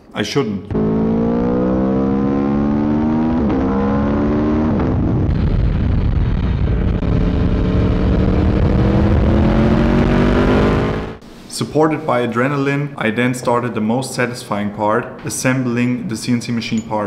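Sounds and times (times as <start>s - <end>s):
motorcycle engine accelerating: 0.7s - 11.2s.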